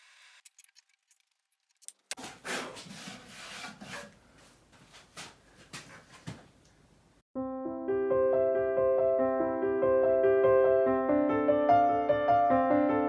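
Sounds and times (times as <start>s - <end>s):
hand tool scraping and rubbing: 2.1s - 4.6s.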